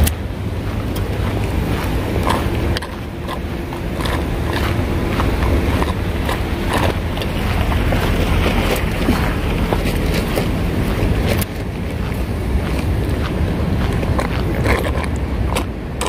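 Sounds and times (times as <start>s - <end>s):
wind rumble on microphone: 0.0s - 16.0s
footsteps on gravel: 0.6s - 15.8s.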